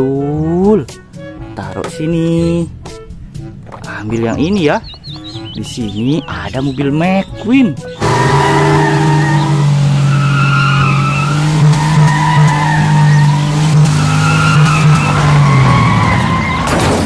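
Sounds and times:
tyres squealing: 0:03.6 - 0:17.0
car engine at high revs: 0:08.0 - 0:16.7.

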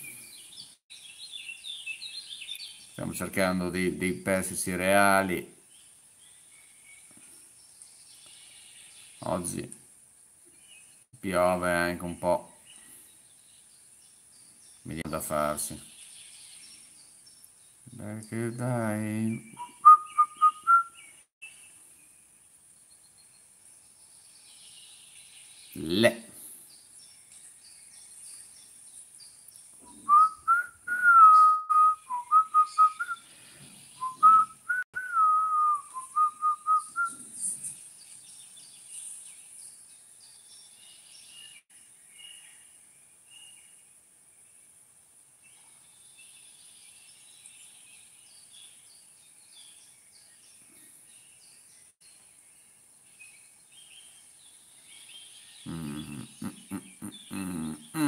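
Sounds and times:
faint bird chirps: 0:00.0 - 0:09.7, 0:10.4 - 0:44.8, 0:45.4 - 0:58.0
person whistling a tune: 0:30.0 - 0:33.2, 0:34.0 - 0:37.2.

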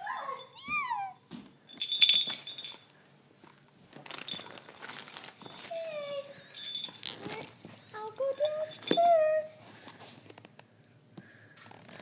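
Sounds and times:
dog whining: 0:00.0 - 0:01.2
loud jingling clink: 0:00.0 - 0:02.9, 0:04.3 - 0:09.4.

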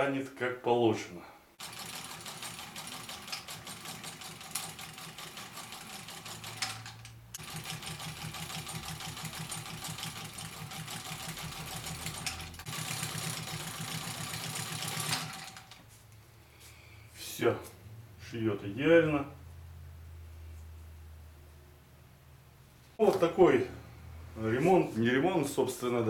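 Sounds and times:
sewing machine stitching: 0:01.6 - 0:15.8.

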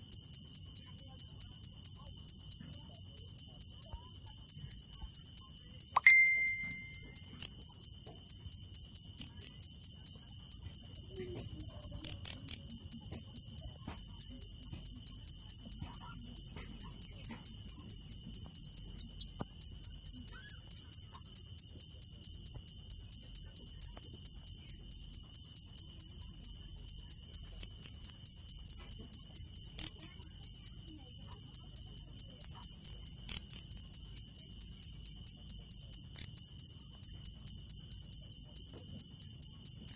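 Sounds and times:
cricket chirping: 0:00.0 - 0:39.9
high whistle-like tone: 0:06.0 - 0:07.2.

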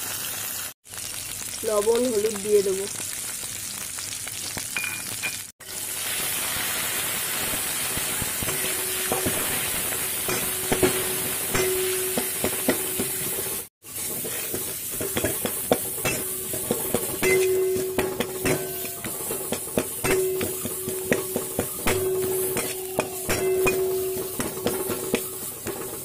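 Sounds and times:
paste sizzling in oil: 0:00.0 - 0:26.0
spatula scraping metal pan: 0:08.5 - 0:26.0.

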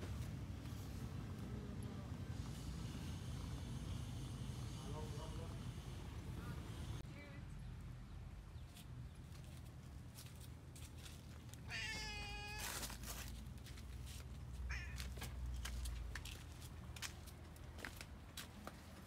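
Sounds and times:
cat meowing: 0:11.6 - 0:13.0, 0:14.6 - 0:15.3.

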